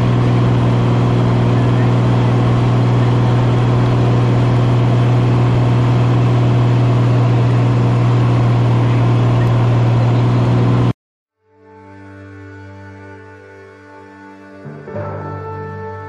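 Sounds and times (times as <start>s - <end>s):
airplane engine and propeller drone: 0.0s - 10.9s
music: 11.3s - 16.0s.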